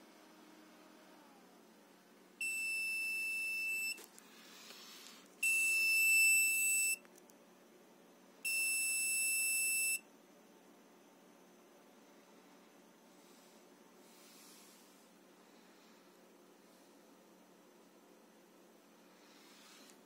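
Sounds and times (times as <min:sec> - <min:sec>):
buzzer beeps high-pitched: 0:02.4 - 0:04.0, 0:05.4 - 0:07.0, 0:08.5 - 0:10.0.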